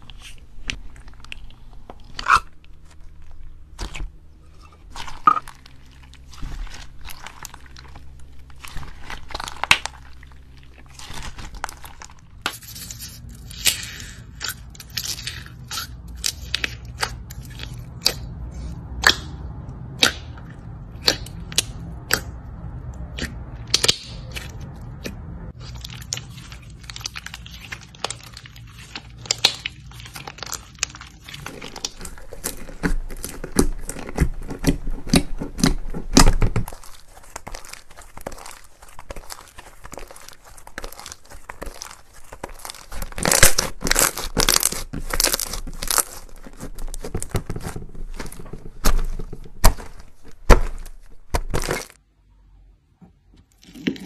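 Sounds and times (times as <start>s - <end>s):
low steady hum: 0.0s - 54.0s
slime clicking and popping: 13.6s - 18.3s, 19.0s - 22.4s, 23.0s - 48.3s.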